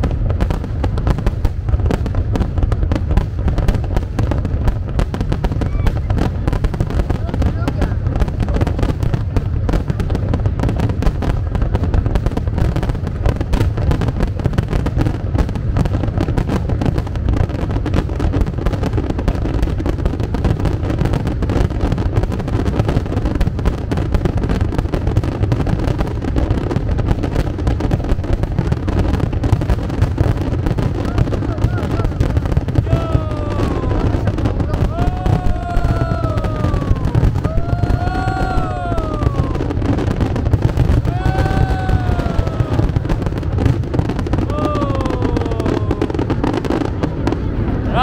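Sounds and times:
fireworks bangs: 0.0s - 48.0s.

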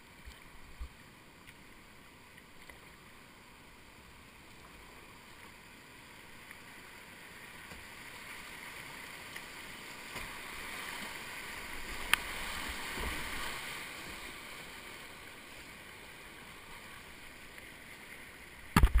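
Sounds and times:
whitewater rushing: 8.2s - 19.0s
sharp click: 18.7s - 19.0s.

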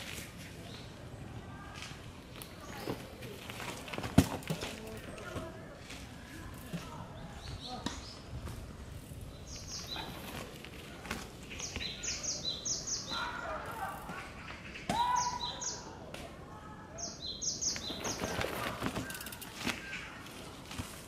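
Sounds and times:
mountain bike knocking and rattling: 1.7s - 15.1s, 17.6s - 21.0s
woodland birds calling: 9.3s - 10.6s, 11.4s - 16.0s, 16.9s - 19.2s.

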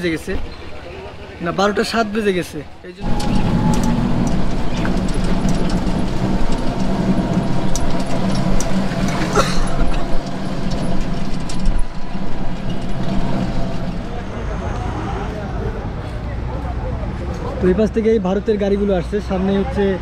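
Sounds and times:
auto-rickshaw engine running: 0.0s - 16.1s
rattles: 3.0s - 14.3s.

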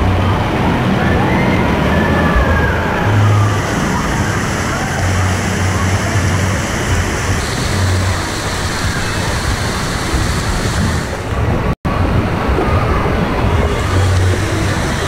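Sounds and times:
low rumbling: 0.0s - 15.0s
water spraying and splashing: 0.0s - 15.0s.

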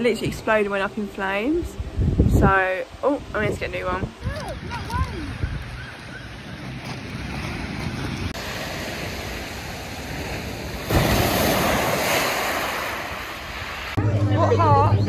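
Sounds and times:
surf breaking on shingle beach: 6.8s - 14.0s.

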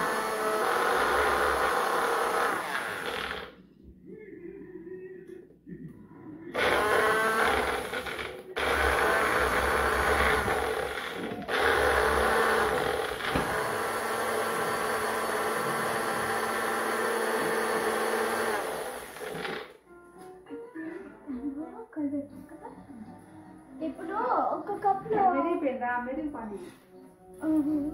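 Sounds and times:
blender motor grinding: 0.0s - 3.6s, 6.6s - 19.8s.

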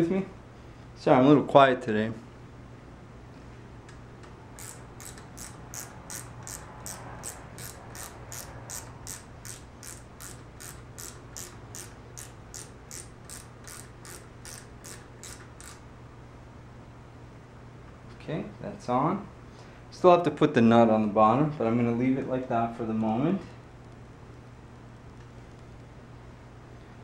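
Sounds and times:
low steady hum: 0.0s - 27.0s
ratchet wrench clicking: 4.6s - 15.8s.

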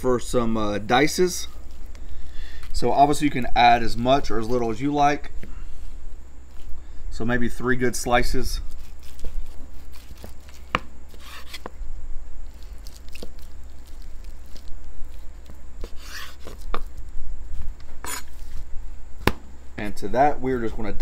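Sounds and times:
knife scraping through crust: 8.7s - 11.8s, 12.6s - 16.9s, 18.0s - 18.6s.

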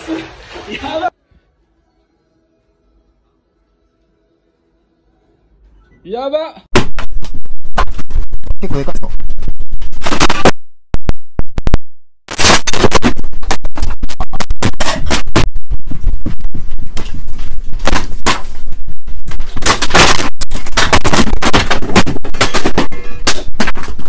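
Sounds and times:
room rattling in earthquake: 12.8s - 24.0s.

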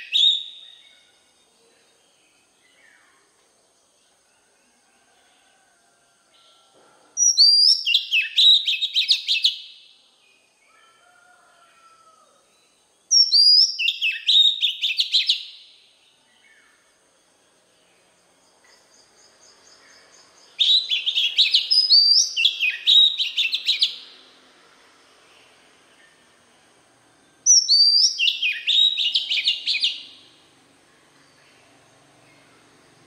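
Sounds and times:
bird singing whistled phrases: 0.0s - 1.1s, 7.2s - 9.8s, 13.1s - 15.6s, 20.6s - 24.0s, 27.5s - 30.2s.

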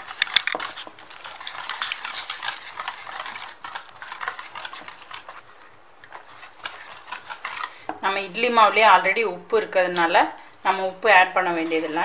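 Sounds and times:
whisk scraping steel bowl: 0.0s - 9.0s, 11.4s - 12.0s.

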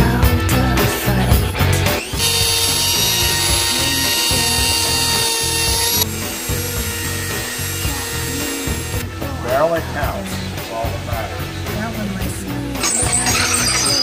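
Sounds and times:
background music with a beat: 0.0s - 14.0s
rotary tool grinding saw teeth: 2.0s - 9.0s, 12.8s - 14.0s.

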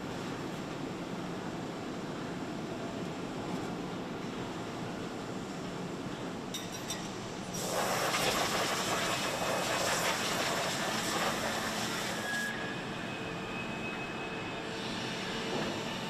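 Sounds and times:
machinery hum with faint tones: 0.0s - 16.0s
factory machinery hiss: 7.5s - 13.5s, 14.1s - 16.0s.

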